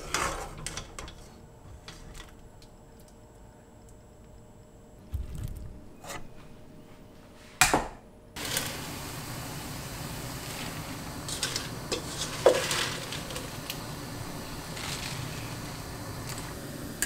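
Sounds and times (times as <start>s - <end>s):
gas stove hissing: 8.4s - 17.0s
leaves rustling in saucepan: 8.4s - 17.0s.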